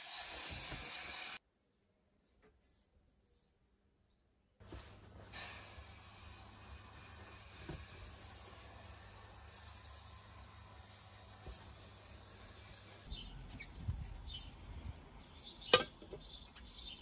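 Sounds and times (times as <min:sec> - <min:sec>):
powder coating gun hissing: 0:00.0 - 0:01.4, 0:04.7 - 0:13.1.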